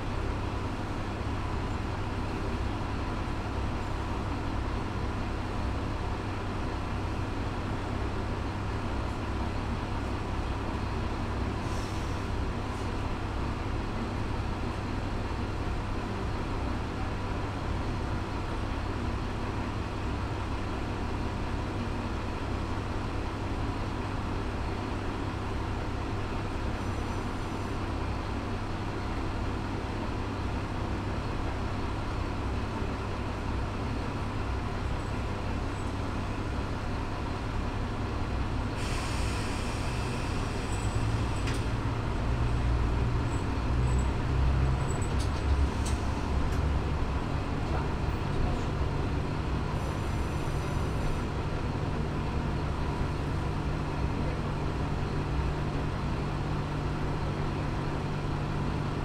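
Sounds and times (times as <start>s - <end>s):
diesel railcar engine idling: 0.0s - 59.0s
air hiss: 38.8s - 40.8s.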